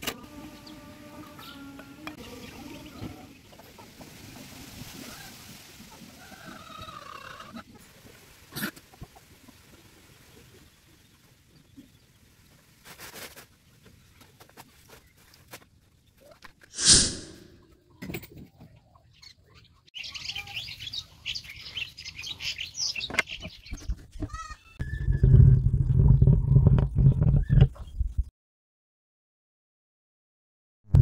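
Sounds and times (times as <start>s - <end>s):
short loud hiss: 16.8s - 17.6s
small birds chirping: 17.9s - 24.5s.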